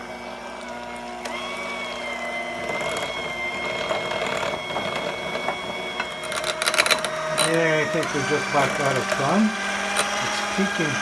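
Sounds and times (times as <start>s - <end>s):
electric hand mixer whine: 0.0s - 11.0s
beaters rattling in bowl: 2.6s - 10.3s.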